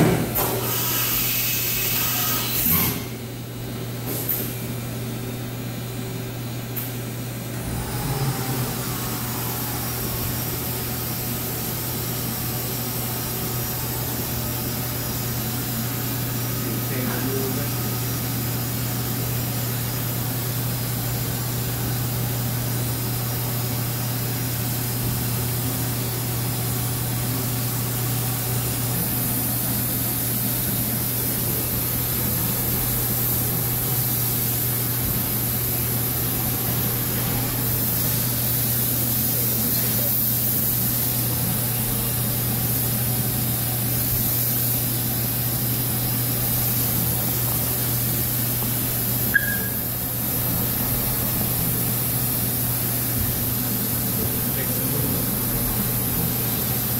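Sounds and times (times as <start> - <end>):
coolant spray hissing: 0.6 - 2.1, 7.6 - 56.9.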